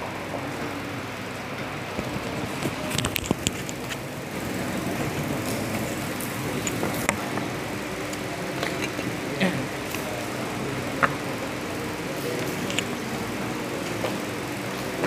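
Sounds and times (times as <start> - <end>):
steady background hum: 0.0 - 15.0
headset handling clicks and rustles: 2.8 - 4.0.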